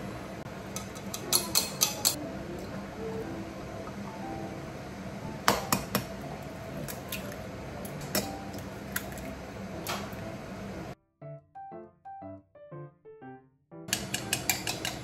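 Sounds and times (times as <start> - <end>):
dishes clicking and knocking: 0.7 - 2.2, 5.4 - 6.1, 8.0 - 9.3, 13.9 - 15.0
soft background music: 0.9 - 15.0
egg cracking: 5.4 - 10.2.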